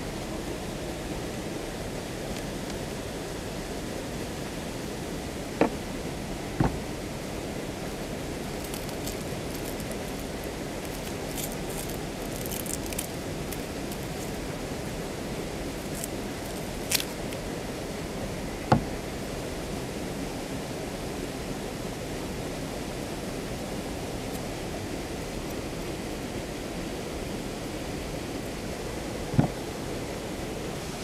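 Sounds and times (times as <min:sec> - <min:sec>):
sharp knocks: 0:06.6 - 0:06.8
steady rushing noise: 0:28.4 - 0:31.0.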